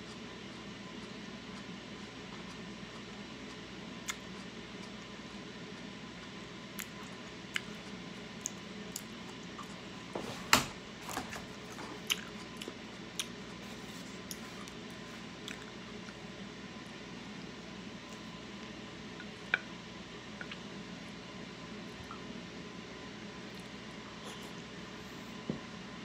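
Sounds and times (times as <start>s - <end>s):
wet chewing sounds: 6.7s - 9.8s, 11.6s - 16.3s.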